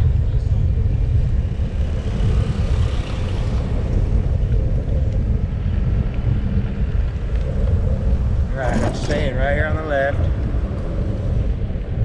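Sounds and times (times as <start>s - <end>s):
bicycle road noise: 0.0s - 12.0s
wind buffeting microphone: 0.0s - 12.0s.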